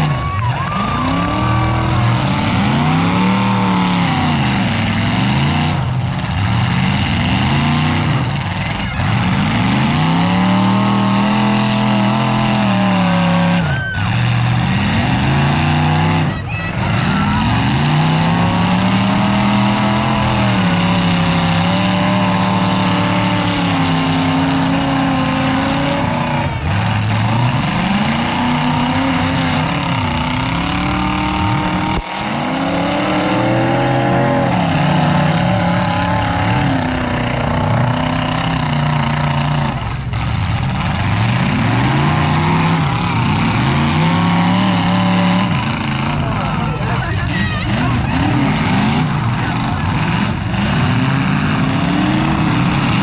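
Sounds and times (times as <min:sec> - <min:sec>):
car engines revving: 0:00.0 - 0:53.0.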